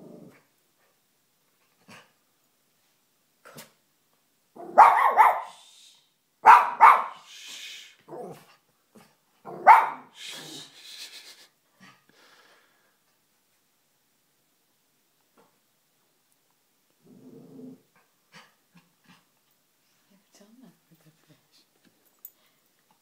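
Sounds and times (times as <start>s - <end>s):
small dog barking: 4.6s - 5.6s, 6.4s - 7.3s, 9.4s - 10.2s.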